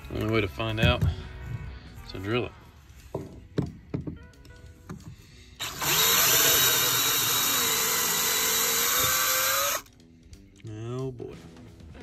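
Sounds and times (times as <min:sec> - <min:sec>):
power drill boring into fibreglass: 0:05.6 - 0:09.9.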